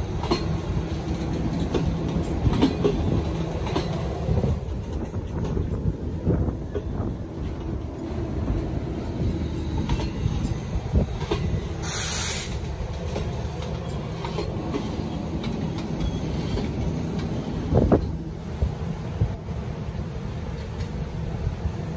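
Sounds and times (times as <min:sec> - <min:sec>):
train wheels rumbling and clicking: 0:00.0 - 0:21.9
sharp hiss: 0:11.8 - 0:12.6.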